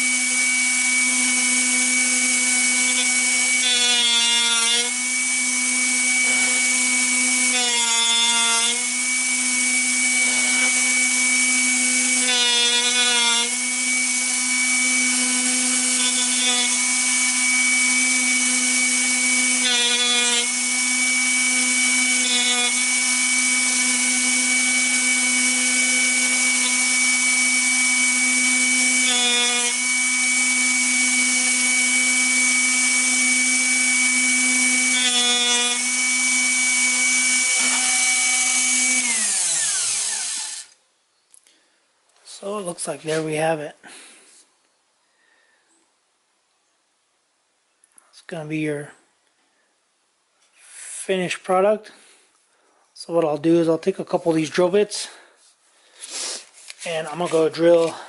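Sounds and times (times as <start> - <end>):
drill bit grinding: 0.0 - 40.8, 56.8 - 58.0
sharpener motor hum: 0.0 - 40.8.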